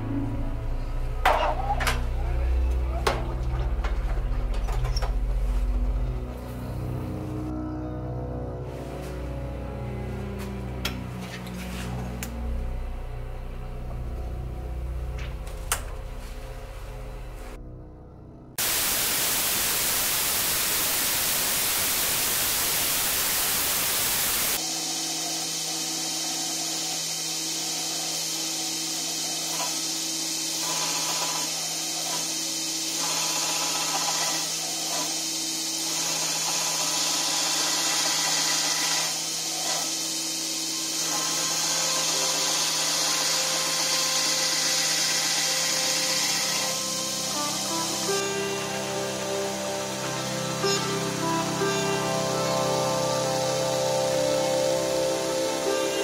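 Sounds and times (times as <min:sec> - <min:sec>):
belt grinder hissing: 0:18.6 - 0:56.0
belt grinder grinding steel: 0:25.5 - 0:51.8.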